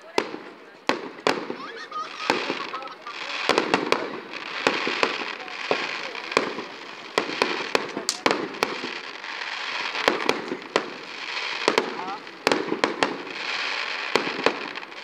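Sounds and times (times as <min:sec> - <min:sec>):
fireworks bangs: 0:00.0 - 0:15.0
fireworks crackling hiss: 0:00.0 - 0:15.0.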